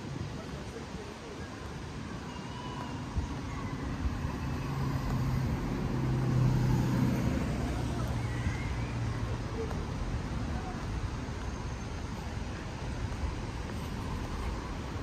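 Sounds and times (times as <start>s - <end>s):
street background noise: 0.0s - 15.0s
vehicle driving past: 4.4s - 9.2s.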